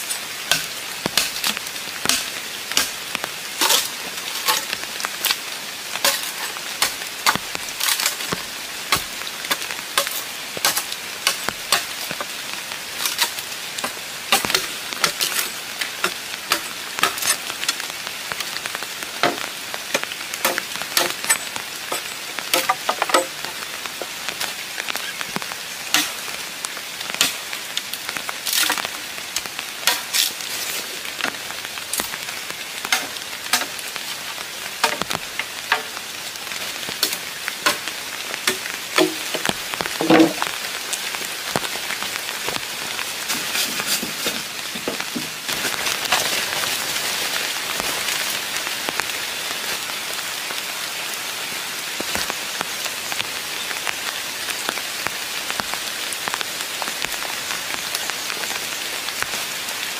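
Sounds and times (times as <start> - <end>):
rain falling: 0.0 - 59.9
sharp taps and knocks: 19.2 - 23.5.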